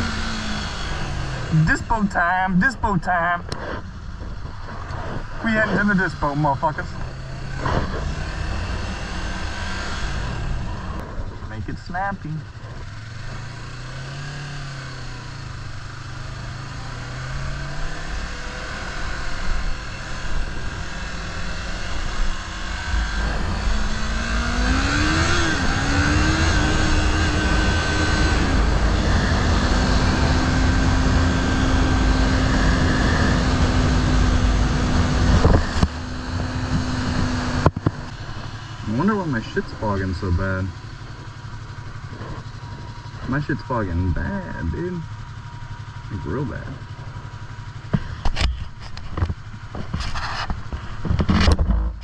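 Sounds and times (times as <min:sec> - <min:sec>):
motorcycle engine accelerating: 0:00.0 - 0:52.0
wind rushing over microphone: 0:20.4 - 0:39.0.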